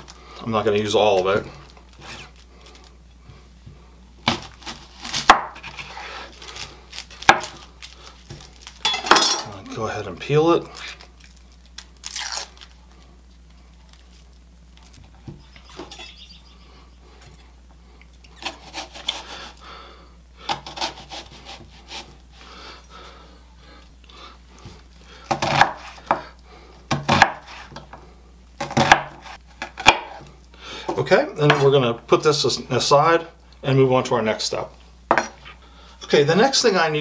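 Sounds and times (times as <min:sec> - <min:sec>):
dry onion skin rustling: 0:00.0 - 0:16.3.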